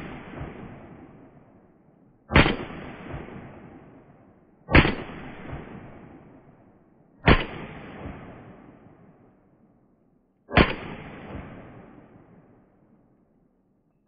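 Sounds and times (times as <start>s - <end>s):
pistol shots with echo: 2.3s - 9.2s, 10.5s - 12.7s.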